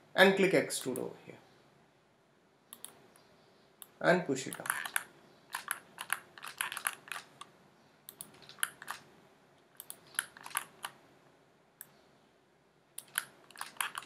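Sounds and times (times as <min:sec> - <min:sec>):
faint room hum: 0:00.0 - 0:14.0
mouse and keyboard clicking: 0:04.5 - 0:07.5, 0:08.1 - 0:09.1, 0:09.8 - 0:11.0, 0:13.0 - 0:14.0.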